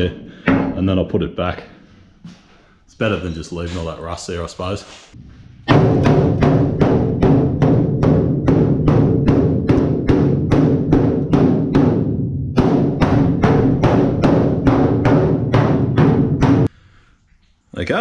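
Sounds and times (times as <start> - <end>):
mallet striking steel cabinet: 0.3 - 1.0, 5.5 - 16.7.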